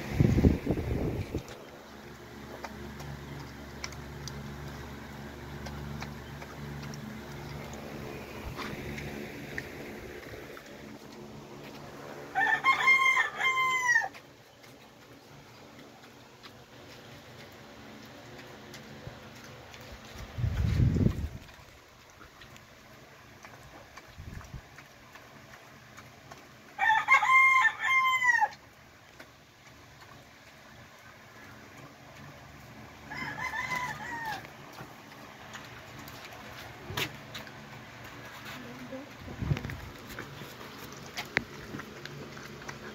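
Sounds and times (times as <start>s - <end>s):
rooster crowing: 12.3s - 14.2s, 26.8s - 28.6s, 33.0s - 34.5s.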